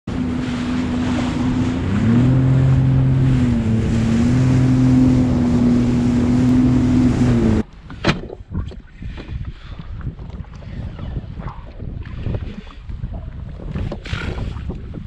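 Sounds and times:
jet ski engine running: 0:00.1 - 0:07.6
wind on microphone: 0:00.1 - 0:15.0.

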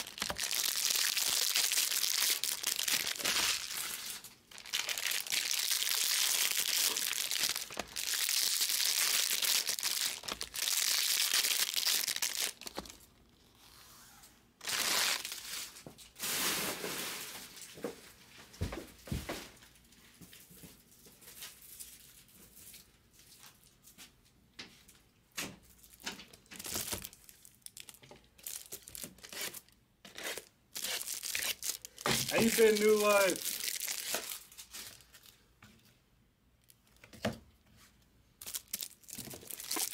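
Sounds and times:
cards crinkling and rustling: 0:00.0 - 0:13.1, 0:25.9 - 0:35.4, 0:38.4 - 0:39.9.

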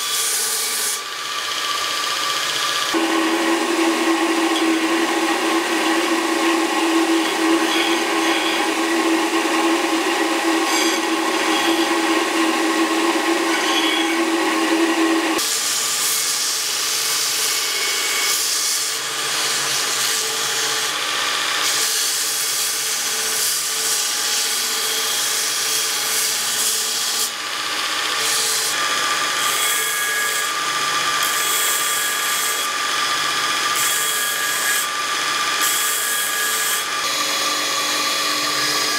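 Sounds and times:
belt grinder grinding steel: 0:00.0 - 0:38.9
electric machine humming: 0:01.0 - 0:15.4, 0:36.8 - 0:38.9.

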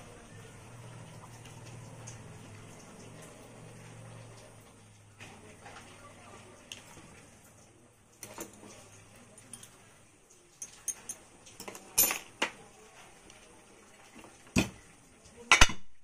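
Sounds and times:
metal parts clinking on workbench: 0:10.6 - 0:12.6.

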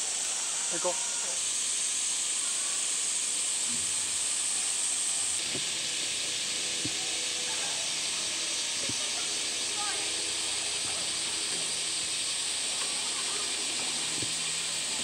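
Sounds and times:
cicadas droning: 0:00.0 - 0:15.0.

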